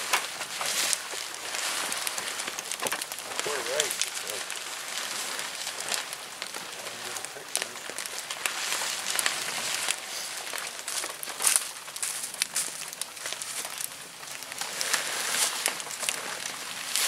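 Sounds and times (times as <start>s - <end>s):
tent fabric rustling: 0.0s - 7.1s, 14.5s - 17.0s
footsteps crunching on dry leaves: 0.0s - 17.0s.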